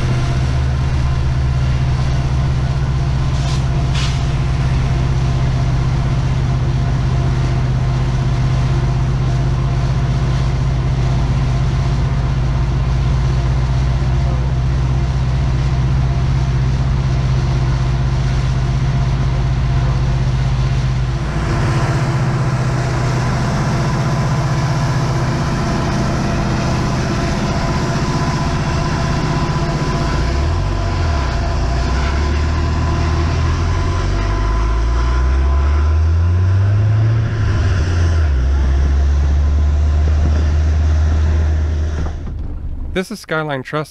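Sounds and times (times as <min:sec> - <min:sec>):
diesel locomotives rumbling: 0:00.0 - 0:43.9
car driving on gravel road: 0:38.2 - 0:43.9.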